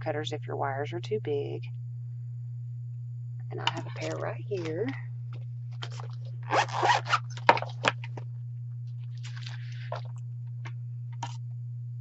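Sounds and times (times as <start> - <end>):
low electrical hum: 0.0 - 12.0
zipper pulled open: 5.8 - 7.8
tools rustling: 5.8 - 8.2.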